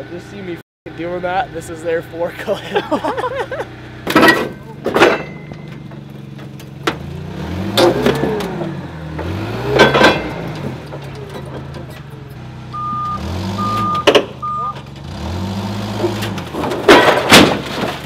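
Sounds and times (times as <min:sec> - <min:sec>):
forklift engine revving: 0:03.0 - 0:05.0, 0:05.7 - 0:18.0
sheet metal banging and crunching: 0:04.1 - 0:07.2, 0:07.8 - 0:12.4, 0:15.8 - 0:18.0.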